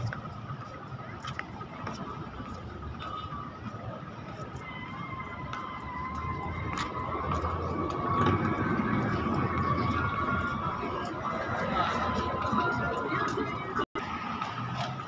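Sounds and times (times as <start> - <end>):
street noise: 0.0 - 15.0
siren-like tone: 4.6 - 13.4.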